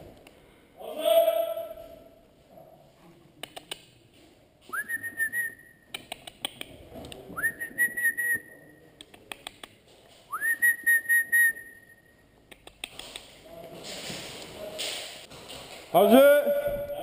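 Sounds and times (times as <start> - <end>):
rising whistling tones: 10.3 - 12.2.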